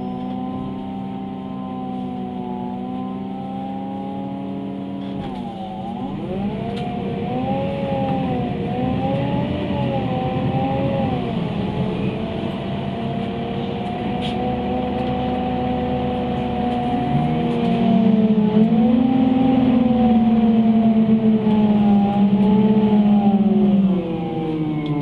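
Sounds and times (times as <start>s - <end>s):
bus engine whine: 0.0s - 25.0s
low engine rumble: 0.0s - 25.0s.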